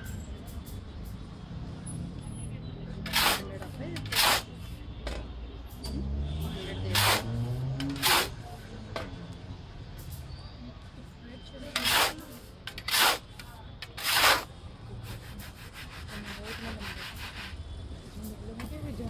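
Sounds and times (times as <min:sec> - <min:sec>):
gritty scraping: 0:03.0 - 0:04.6, 0:06.8 - 0:08.4, 0:11.7 - 0:14.5.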